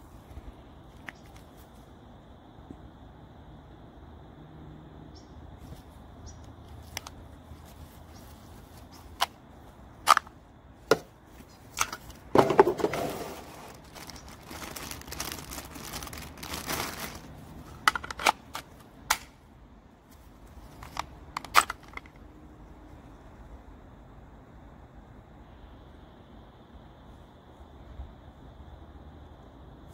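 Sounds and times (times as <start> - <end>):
plastic parts clicking: 6.8 - 7.2, 10.0 - 10.3, 11.7 - 19.4, 20.7 - 22.2
plastic bag crinkling: 11.8 - 18.8.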